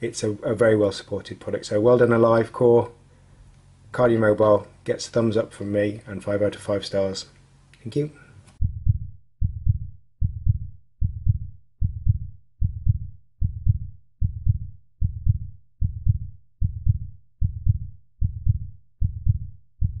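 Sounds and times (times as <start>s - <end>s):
heartbeat thumps: 8.6s - 20.0s.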